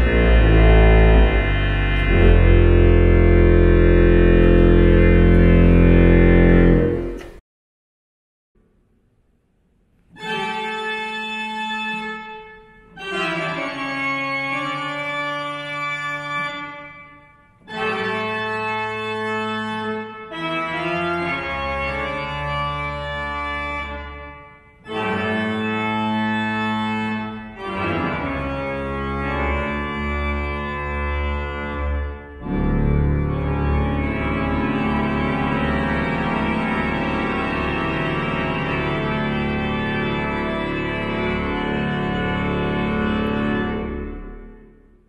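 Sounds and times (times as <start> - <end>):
deep organ pedal bass: 0.0 - 7.4, 10.2 - 45.0
pipe organ chords: 0.0 - 7.4, 10.1 - 45.0.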